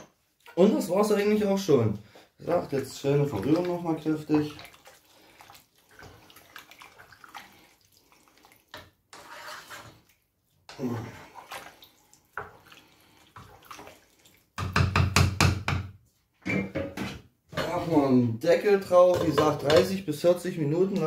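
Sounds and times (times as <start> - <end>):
wooden spoon stirring thick stew: 0.0 - 16.3.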